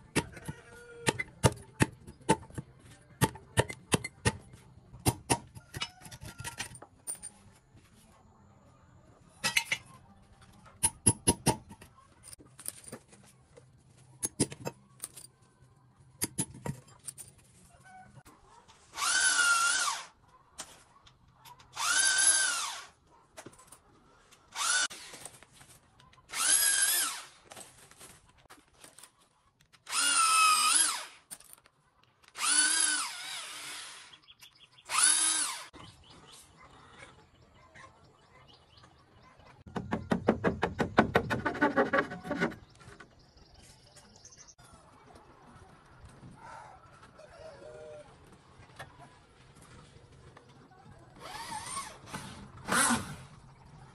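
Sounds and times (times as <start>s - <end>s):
power drill whining: 19.0s - 20.1s, 21.8s - 22.9s, 24.6s - 25.1s, 26.3s - 27.3s, 29.9s - 31.2s, 32.4s - 34.2s, 34.9s - 35.7s, 51.2s - 53.3s.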